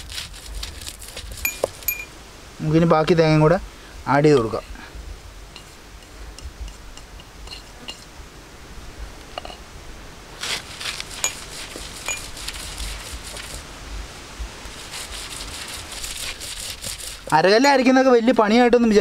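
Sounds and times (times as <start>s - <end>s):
stone roller grinding on stone: 0.0s - 2.1s, 10.4s - 13.6s, 14.8s - 17.9s.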